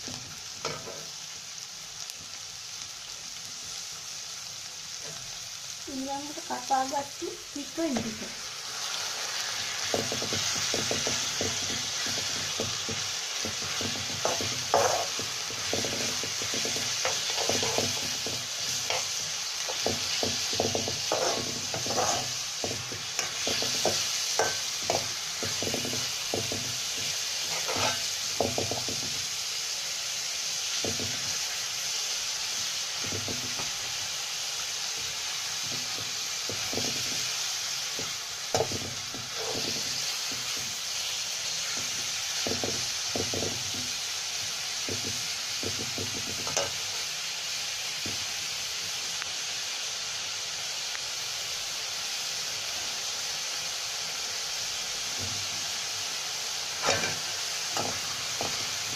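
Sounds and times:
chicken sizzling in hot oil: 0.0 - 58.9
metal spoon scraping a wok: 10.0 - 29.0, 35.8 - 40.7, 56.8 - 58.8.

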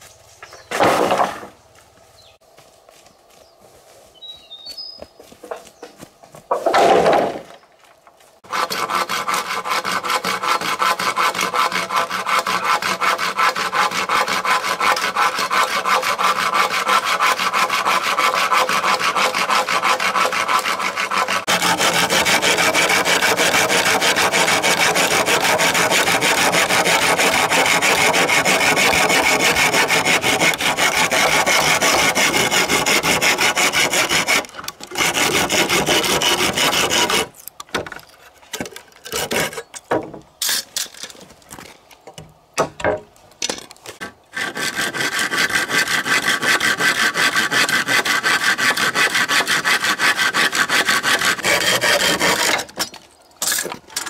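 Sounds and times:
hand saw cutting bamboo: 8.4 - 37.4, 38.6 - 39.7, 43.9 - 54.0.

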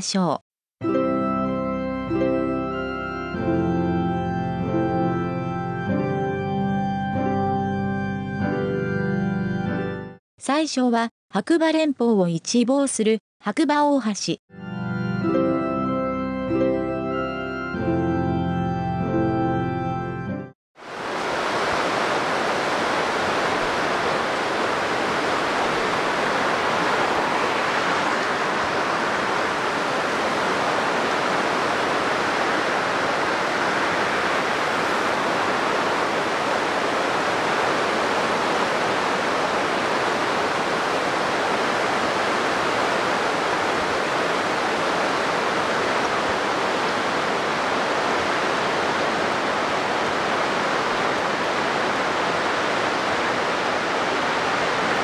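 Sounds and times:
river water rushing: 20.8 - 55.0.

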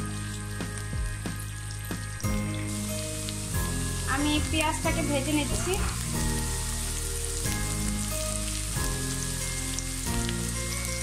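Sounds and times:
onions sizzling in oil: 0.0 - 11.0.

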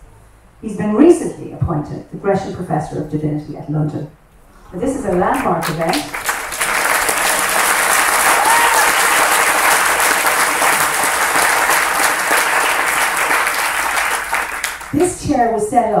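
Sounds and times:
audience applauding: 5.2 - 15.2.

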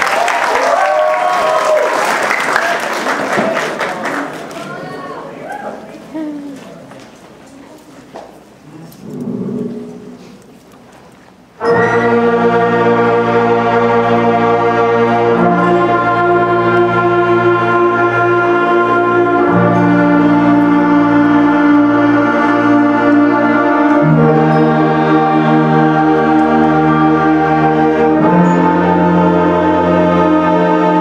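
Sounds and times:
concert band playing slow chorale: 8.7 - 31.0.

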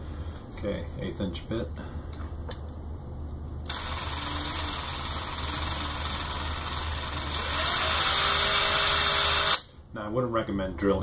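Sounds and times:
cordless drill whining: 3.6 - 9.7.

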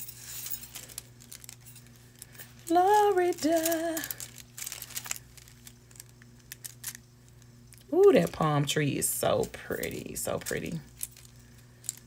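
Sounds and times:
woman singing: 2.7 - 4.2.

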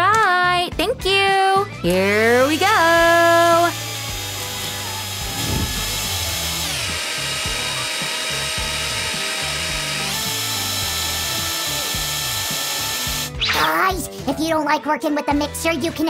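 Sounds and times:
electric hand mixer whine: 2.1 - 13.4.

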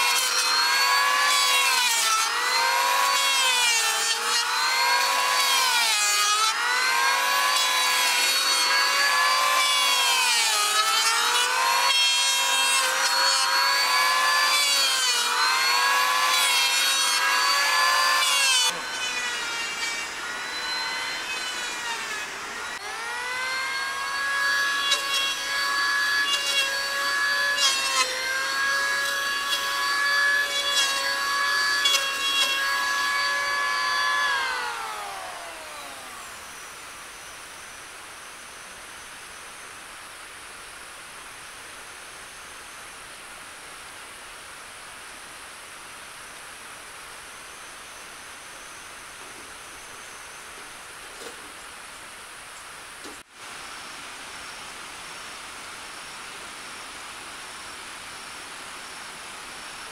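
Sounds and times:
electric planer shaving wood: 0.0 - 36.8.

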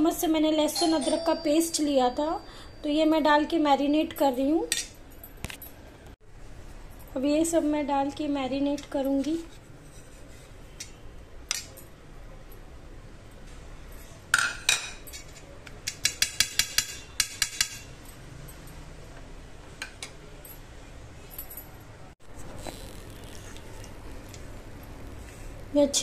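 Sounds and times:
spoon tapping steel plate: 15.8 - 17.8.

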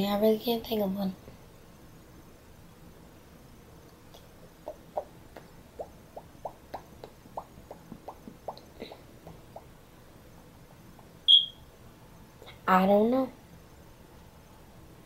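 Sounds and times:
boy making mouth pops: 4.1 - 9.7.

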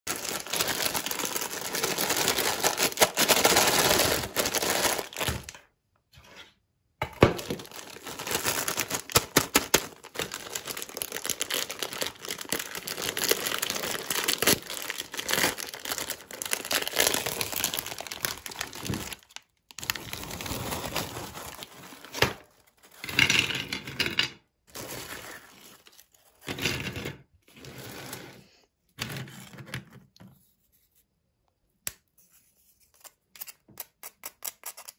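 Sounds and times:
plastic packet crinkling: 0.1 - 5.6, 7.3 - 23.2.

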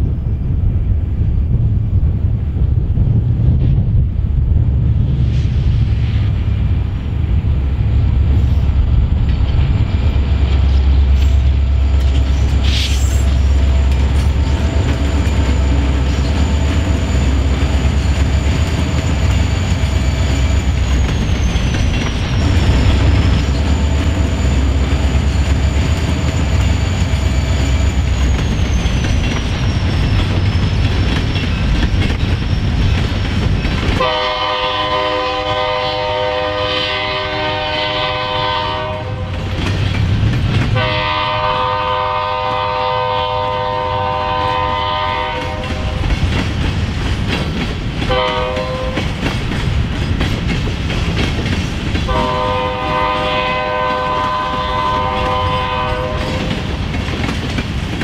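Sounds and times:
diesel locomotives rumbling: 0.0 - 58.0
wheels on rails: 7.1 - 34.1, 45.2 - 58.0
locomotive air horn chord: 34.0 - 39.3, 40.8 - 45.9, 48.1 - 49.0, 52.1 - 56.5.

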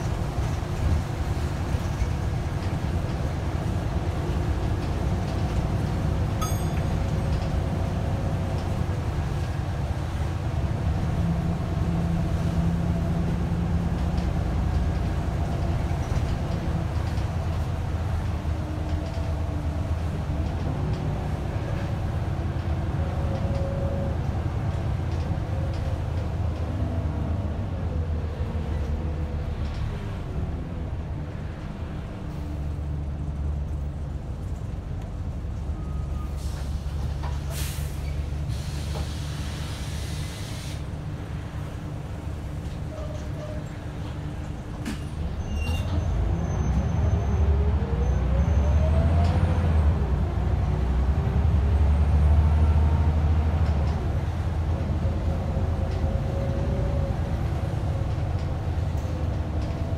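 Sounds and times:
bus engine rumbling: 0.0 - 59.9
bell ding: 6.4 - 7.0.

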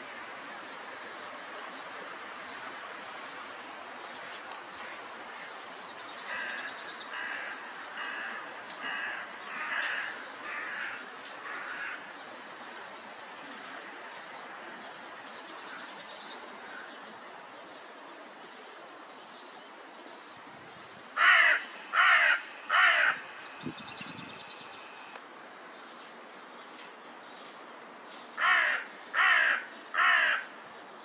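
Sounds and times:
steady background hiss: 0.0 - 31.0
crow cawing: 6.3 - 12.1, 21.2 - 23.6, 28.4 - 30.5.

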